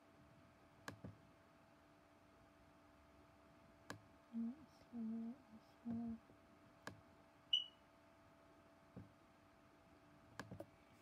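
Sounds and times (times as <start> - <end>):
faint steady hum: 0.0 - 11.0
computer mouse clicking: 0.8 - 1.2, 10.4 - 10.7
short high beep: 7.5 - 7.8.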